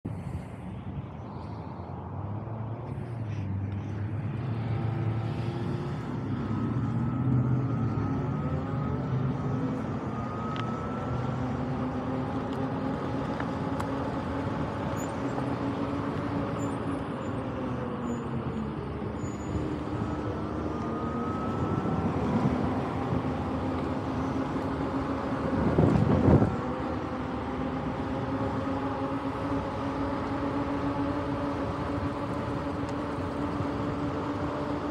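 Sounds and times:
wind noise: 21.0 - 27.0.

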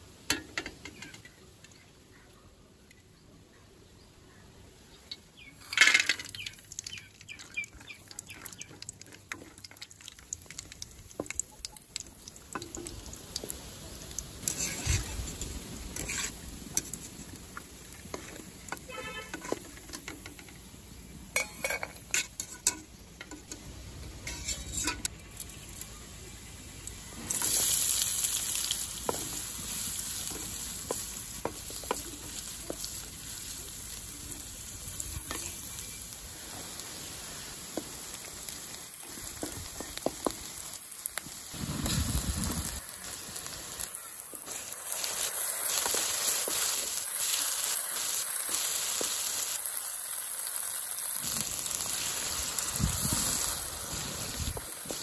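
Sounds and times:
onions hitting hot oil: 0.2 - 1.4, 5.0 - 25.9, 26.7 - 55.0
oil sizzling in a pan: 5.1 - 55.0
wooden spatula stirring: 14.4 - 20.6, 28.6 - 33.7, 39.0 - 40.6
utensils knocking and scraping pan: 16.0 - 17.1, 18.0 - 20.6, 21.4 - 23.6, 24.2 - 25.1.

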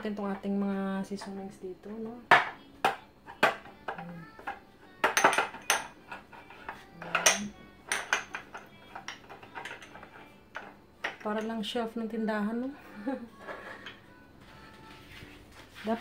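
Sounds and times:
glass jars clinking on shelf: 5.0 - 6.0, 7.0 - 11.6.

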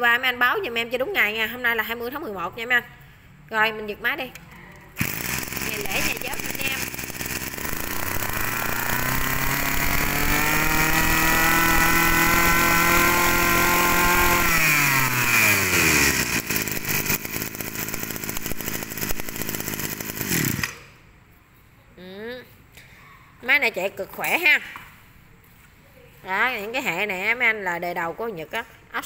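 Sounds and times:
brush-cutter engine revving and idling: 5.0 - 20.9.

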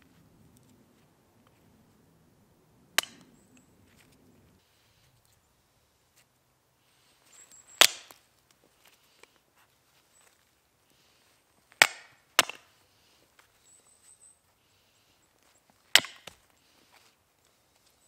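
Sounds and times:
hatchet chopping kindling: 3.0 - 3.4, 7.8 - 8.2, 11.7 - 12.8, 15.9 - 16.4.

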